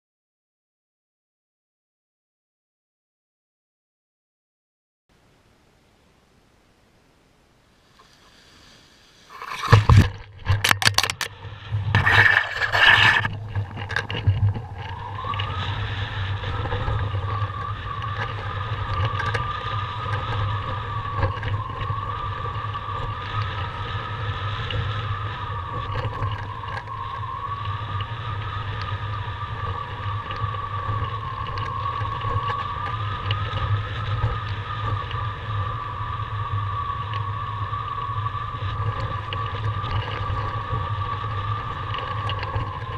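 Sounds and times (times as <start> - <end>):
camera scraping through grass: 8.0 - 17.5
wind rushing over microphone: 8.6 - 42.9
wavering whistling tone: 14.5 - 42.9.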